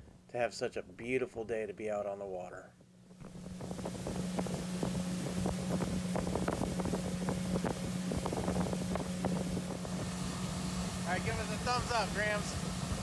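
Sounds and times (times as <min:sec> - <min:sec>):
outboard motor humming: 0:03.0 - 0:13.0
wind buffeting microphone: 0:03.2 - 0:13.0.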